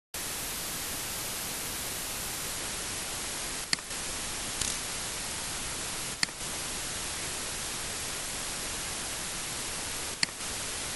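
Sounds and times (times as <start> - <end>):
microphone hiss: 0.2 - 10.9
sharp click: 4.6 - 4.8, 6.2 - 6.4, 10.2 - 10.4.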